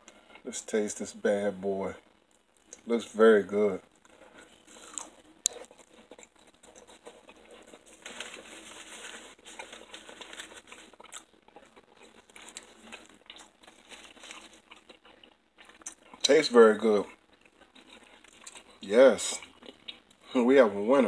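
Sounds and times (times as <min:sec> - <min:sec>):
paper towel rustling and crinkling: 0:05.8 - 0:11.0, 0:12.0 - 0:14.7.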